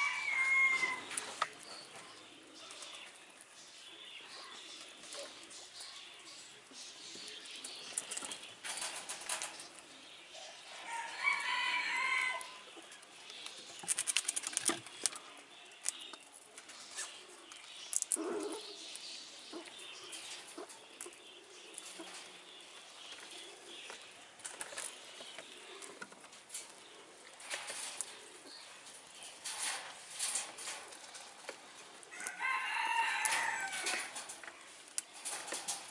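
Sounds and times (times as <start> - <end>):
squirrels scrambling over wood: 13.2 - 17.1.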